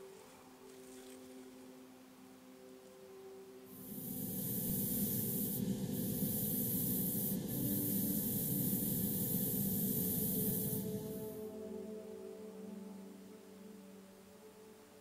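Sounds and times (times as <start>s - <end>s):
airbrush spraying hiss: 3.7s - 11.5s.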